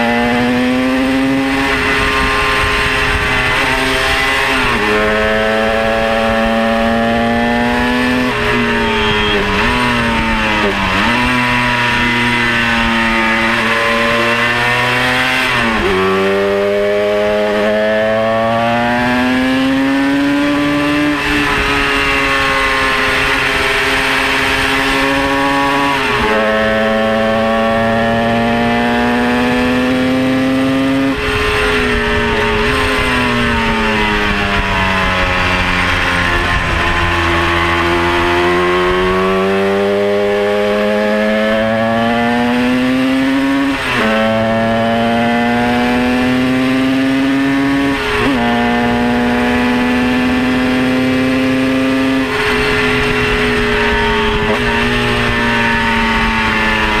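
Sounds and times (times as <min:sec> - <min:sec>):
wind rush: 0:00.0 - 0:16.0, 0:30.6 - 0:40.4, 0:52.0 - 0:57.0
race car engine accelerating: 0:00.0 - 0:57.0.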